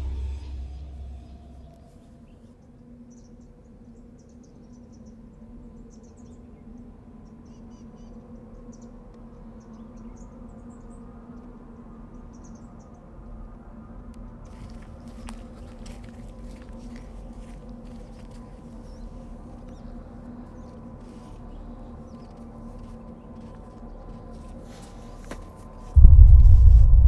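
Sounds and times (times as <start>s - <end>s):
steady low hum: 26.0s - 27.0s.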